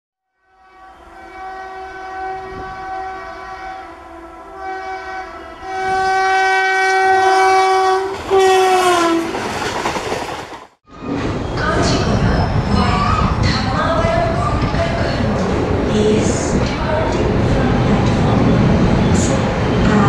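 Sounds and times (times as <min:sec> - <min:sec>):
train horn blasts: 0:00.3 - 0:09.3
rushing of passing train: 0:00.5 - 0:20.0.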